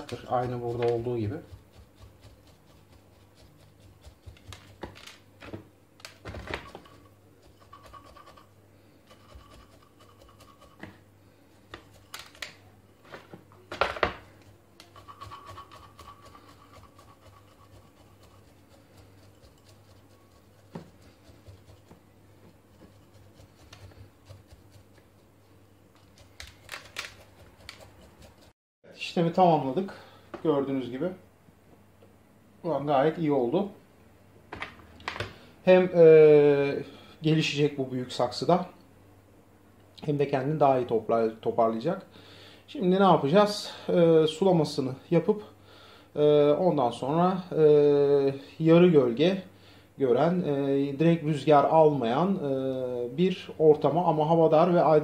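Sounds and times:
gritty soil scratching: 0.0s - 5.0s, 14.9s - 22.0s.

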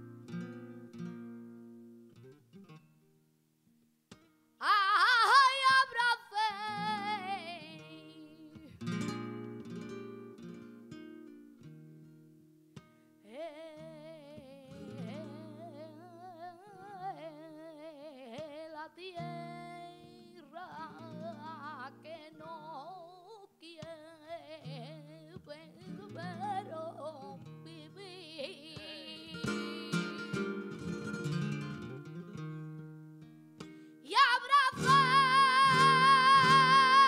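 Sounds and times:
flamenco guitar: 0.0s - 37.0s
woman singing flamenco: 4.6s - 9.4s, 13.2s - 32.4s, 33.6s - 37.0s.

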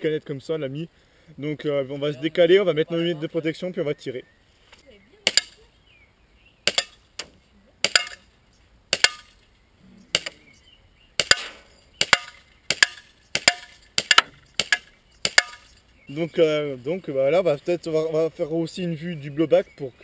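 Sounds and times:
airsoft pistol shots cracking: 6.6s - 8.2s, 8.9s - 9.4s, 10.1s - 10.4s, 11.2s - 15.7s.

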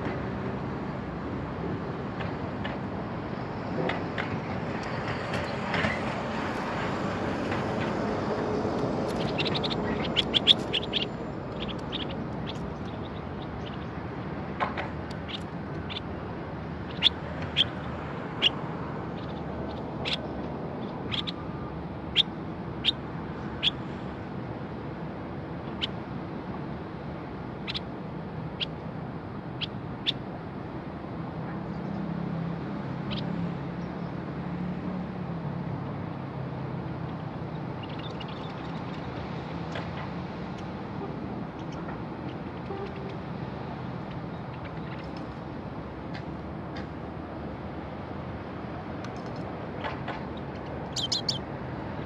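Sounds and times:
bird chirping: 9.0s - 14.0s, 16.9s - 17.8s, 18.4s - 21.4s, 37.7s - 39.1s, 50.3s - 51.5s.

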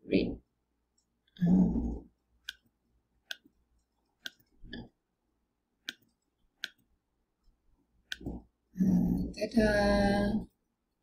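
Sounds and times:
mouse button clicks: 2.4s - 3.5s.

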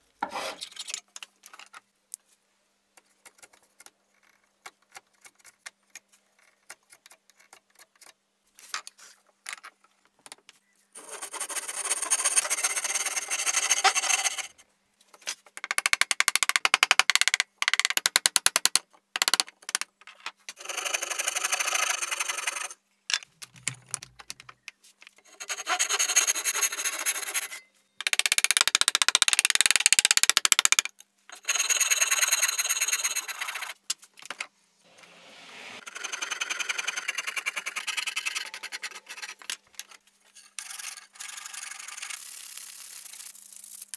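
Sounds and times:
metal tool scraping wood: 0.2s - 0.9s, 11.0s - 14.5s, 25.2s - 27.7s.

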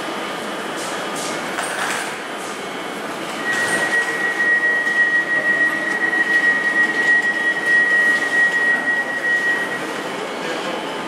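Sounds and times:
passenger train running: 0.0s - 11.0s
high-pitched whine: 2.7s - 10.8s.

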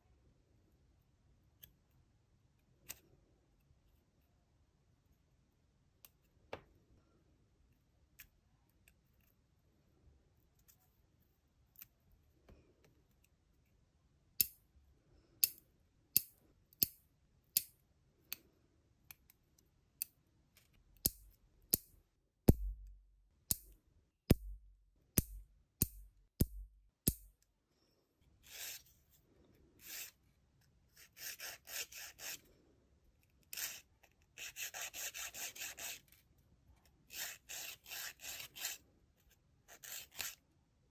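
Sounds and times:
nail file rasping on nails: 31.0s - 32.5s, 33.5s - 36.1s, 37.1s - 38.8s, 39.7s - 40.4s.

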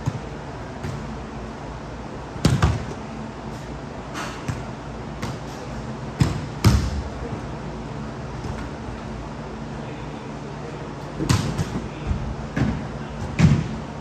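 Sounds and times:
steady low hum: 0.0s - 14.0s
ball striking hard surfaces: 6.2s - 7.1s.

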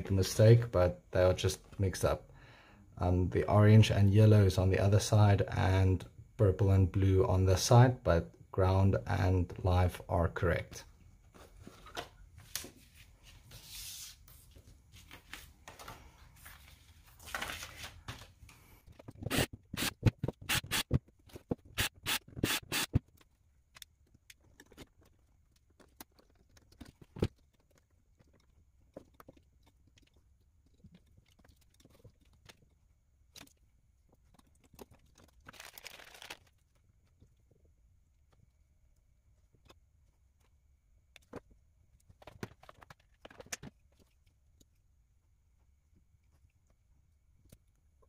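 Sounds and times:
paper or packaging rustling: 13.5s - 18.4s, 34.2s - 36.9s.

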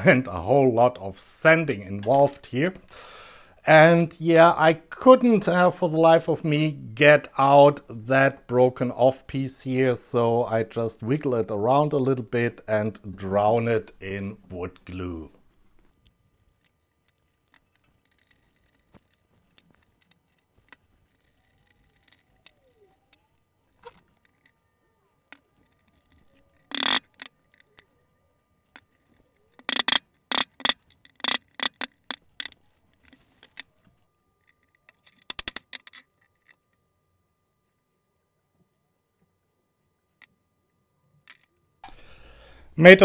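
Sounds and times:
handling of parts: 15.4s - 37.8s, 41.1s - 42.2s.

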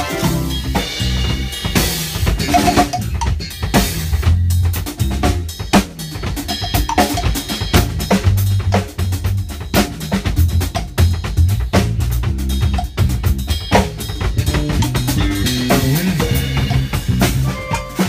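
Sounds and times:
electric bass long low notes: 0.0s - 5.6s, 10.5s - 18.0s
drum kit groove: 0.0s - 18.0s.

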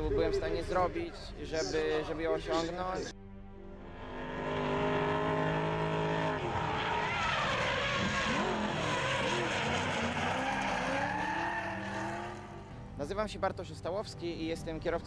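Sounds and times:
car engines at high revs: 3.8s - 12.7s
tyres squealing: 6.4s - 12.5s.

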